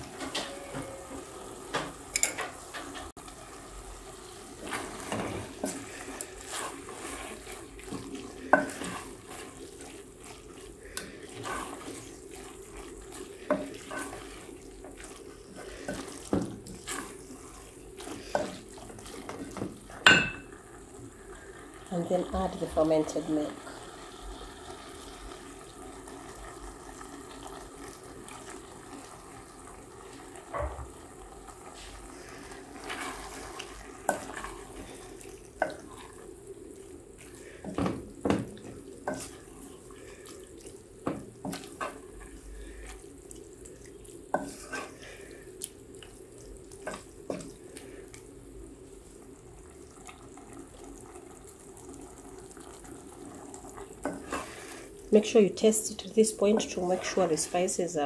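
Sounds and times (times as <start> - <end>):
pots and utensils clinking: 0.0 - 3.1, 8.0 - 9.1, 19.4 - 20.6.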